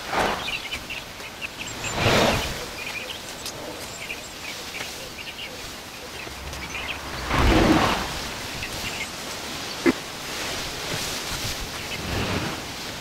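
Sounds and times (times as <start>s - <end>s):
small birds chirping: 0.0s - 12.8s
loud rush of noise: 5.7s - 11.0s, 11.7s - 13.0s.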